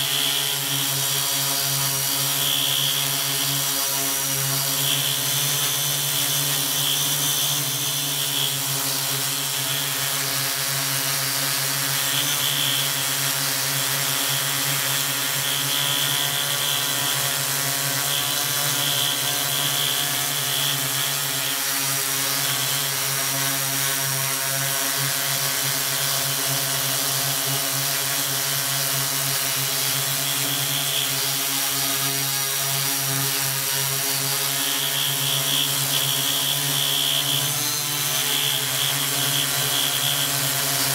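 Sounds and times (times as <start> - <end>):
drone propellers buzzing: 0.0 - 40.9
faint high whine: 2.1 - 3.6, 4.4 - 13.2, 14.1 - 21.6, 33.6 - 40.9.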